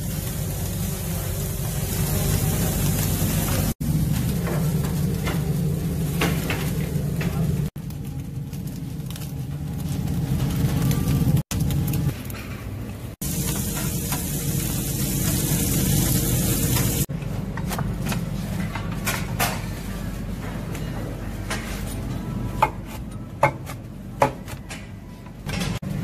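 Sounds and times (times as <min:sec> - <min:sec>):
food sizzling: 0:00.0 - 0:12.2, 0:13.2 - 0:17.1.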